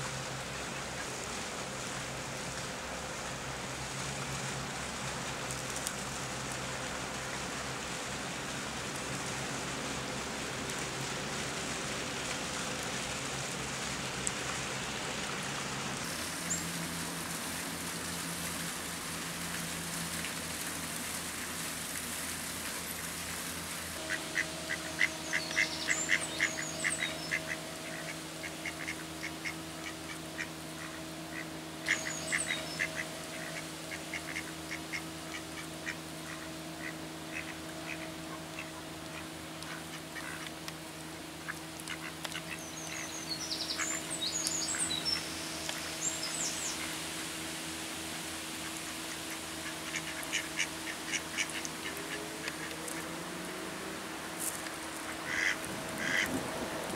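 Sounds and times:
outdoor ambience hiss: 0.0 - 56.9
ducks quacking: 24.0 - 40.5, 41.4 - 43.2, 48.6 - 53.7, 54.9 - 56.4.

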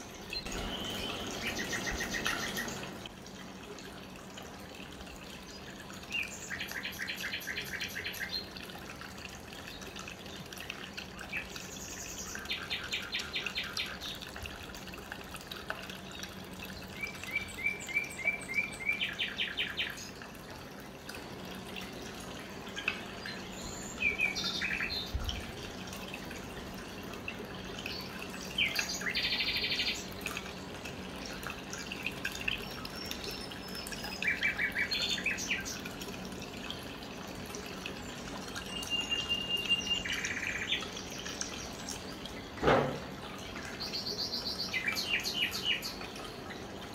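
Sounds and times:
birds chirping: 0.0 - 3.1, 21.8 - 25.3, 27.8 - 30.8, 32.4 - 35.9, 37.9 - 42.6
fountain trickling and splashing: 0.0 - 46.9
low steady hum: 0.0 - 46.9.

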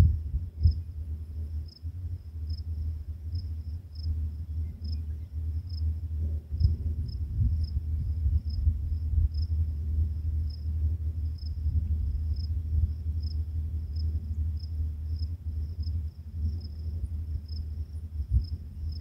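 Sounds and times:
crickets chirping: 0.0 - 19.0
low uneven rumble: 0.0 - 19.0.

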